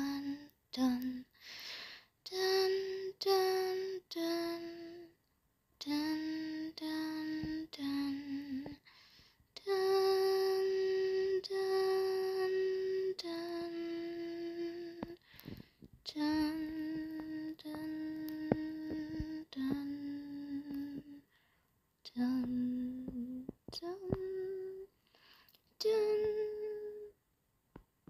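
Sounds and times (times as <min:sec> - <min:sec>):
person humming a slow tune: 0:00.0 - 0:01.4, 0:02.3 - 0:05.2, 0:05.8 - 0:08.8, 0:09.6 - 0:21.3, 0:22.1 - 0:24.9, 0:25.8 - 0:27.2.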